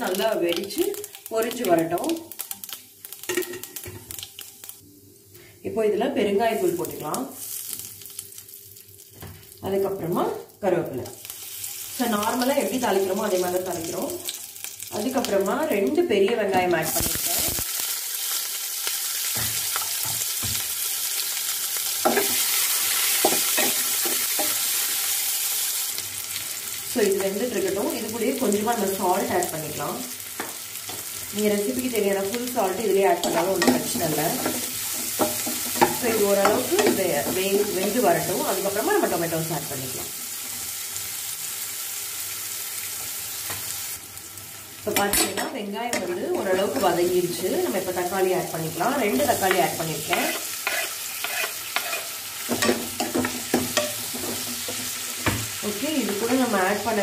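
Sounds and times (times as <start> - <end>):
onions sizzling in hot oil: 0.0 - 5.5, 6.1 - 57.0
spatula scraping pan: 49.2 - 55.0.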